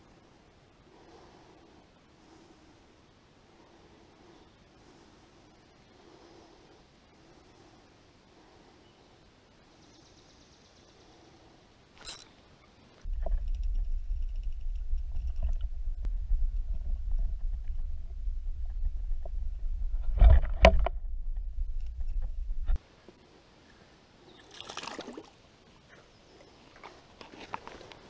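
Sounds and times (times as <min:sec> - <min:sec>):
rustle: 0:00.0 - 0:28.0
muffled underwater stream rumble: 0:13.1 - 0:22.8.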